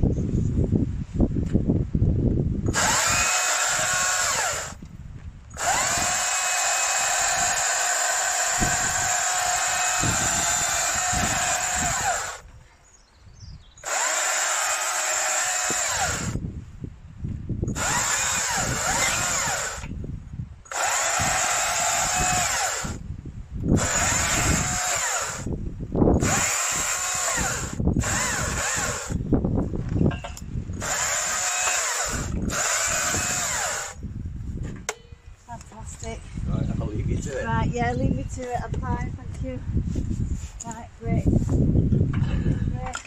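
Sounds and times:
battery chainsaw whining: 2.7 - 4.8, 5.5 - 12.5, 13.8 - 16.4, 17.7 - 20.0, 20.7 - 23.0, 23.7 - 29.3, 30.8 - 34.0.

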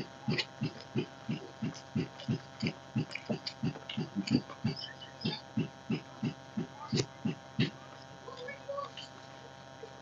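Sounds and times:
person chewing food: 0.0 - 7.7
wet mouth clicks: 0.3 - 7.7.

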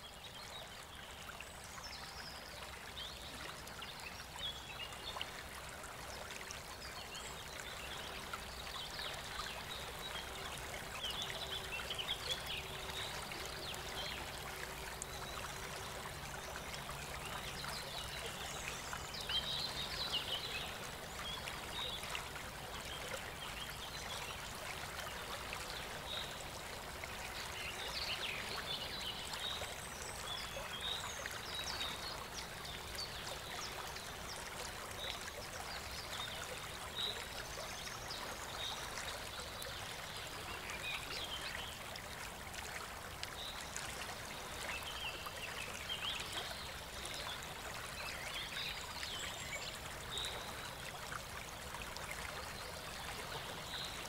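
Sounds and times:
fountain trickling: 0.0 - 54.0.

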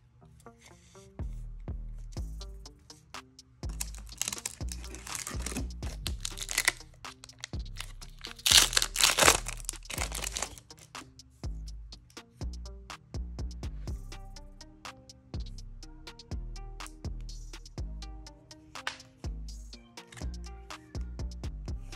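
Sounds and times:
background music with steady beat: 0.1 - 21.9
wrapper crinkling and tearing: 3.7 - 10.9.

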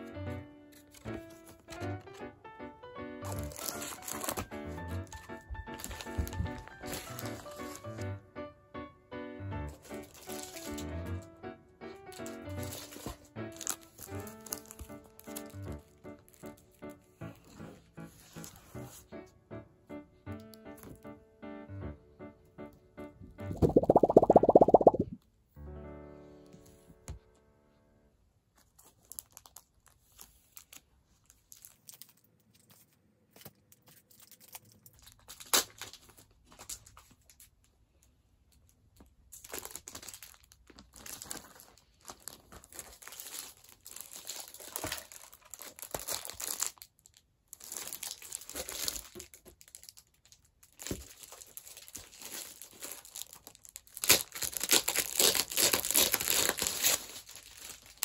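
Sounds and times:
plastic sleeves and paper rustling: 0.0 - 2.2, 3.2 - 8.1, 9.7 - 11.2, 12.0 - 19.1, 28.5 - 58.0.

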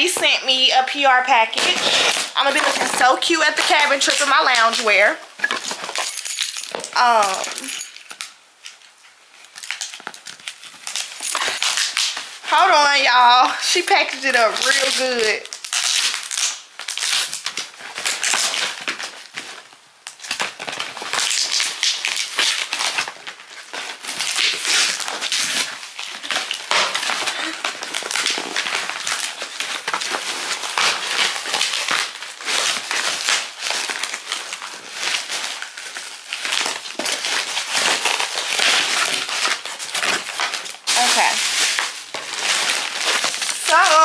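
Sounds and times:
plastic and cardboard crinkling: 0.0 - 44.0.

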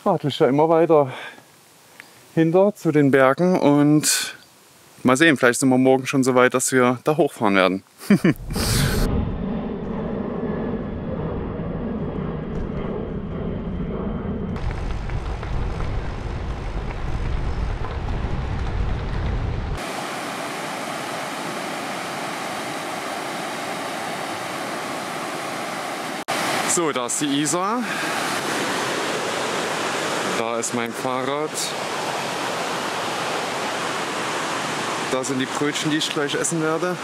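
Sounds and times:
wind rumbling on microphone: 8.3 - 26.6
river rapids rushing: 19.8 - 36.7.

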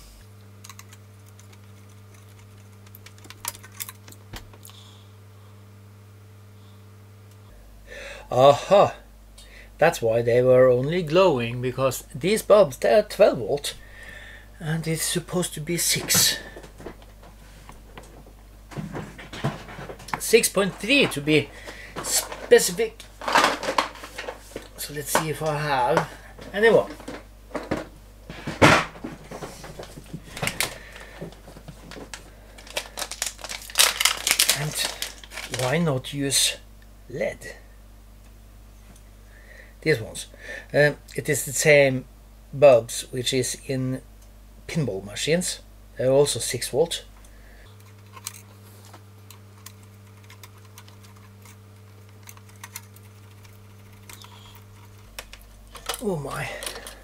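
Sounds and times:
low electrical hum: 0.0 - 57.0
plastic bag rustling: 15.8 - 25.2, 28.3 - 35.9.

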